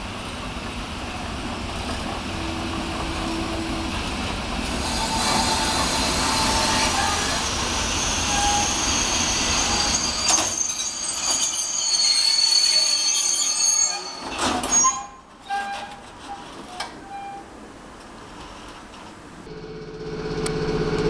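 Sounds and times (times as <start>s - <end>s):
train wheels rumbling on rail: 0.0s - 19.5s
high-pitched wheel squeal: 8.1s - 16.5s.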